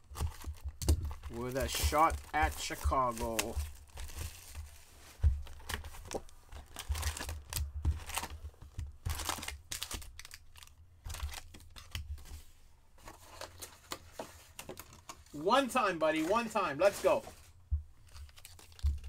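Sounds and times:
plastic wrapping crinkling and tearing: 0:00.0 - 0:04.8, 0:05.4 - 0:12.2, 0:18.0 - 0:19.0.

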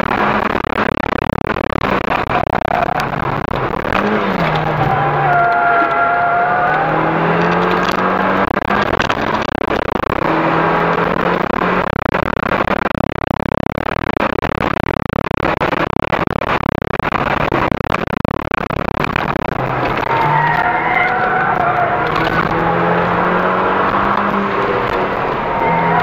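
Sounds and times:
road and wind noise: 0:00.0 - 0:26.0
car engine note: 0:18.4 - 0:26.0
tyre squeal: 0:25.4 - 0:26.0.

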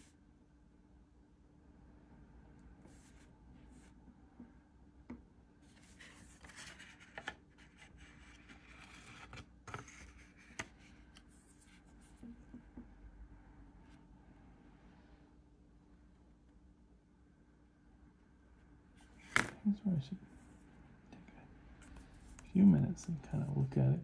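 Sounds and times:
paper sliding and rubbing: 0:05.7 - 0:10.7.

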